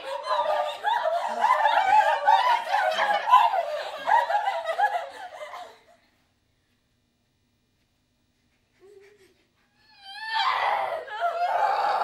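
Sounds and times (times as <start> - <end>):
group laughing and giggling: 0.0 - 6.2.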